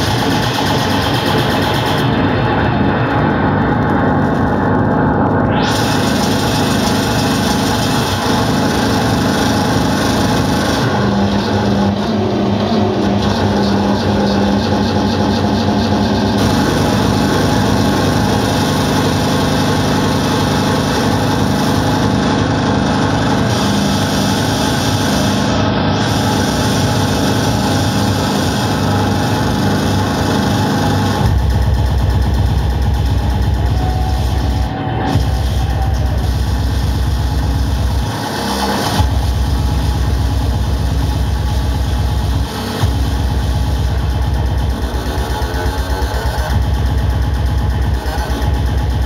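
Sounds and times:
electronic dance music: 0:00.0 - 0:49.0.

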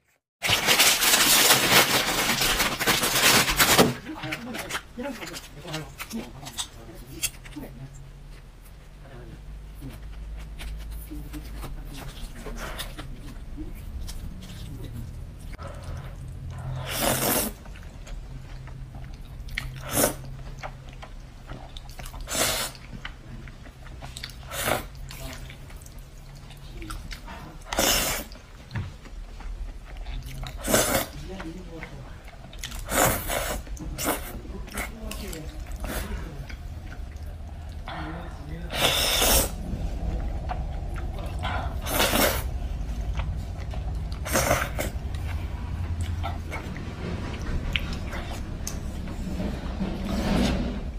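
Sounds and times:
wet chewing: 0:00.0 - 0:50.0
noodles slurping: 0:09.8 - 0:28.7, 0:29.4 - 0:50.9.

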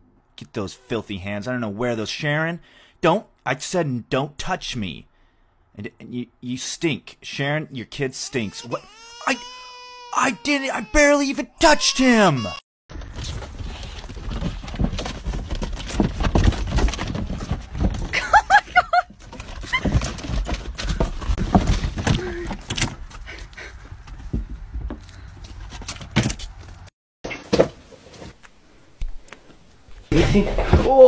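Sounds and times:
short high squeaky cries: 0:08.2 - 0:12.6
knocks and bumps: 0:13.0 - 0:23.2
rustling: 0:13.0 - 0:26.9.

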